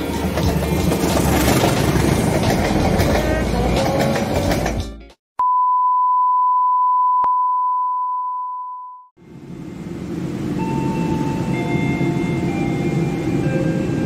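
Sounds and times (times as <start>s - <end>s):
electronic beep tone: 5.4s - 9.1s.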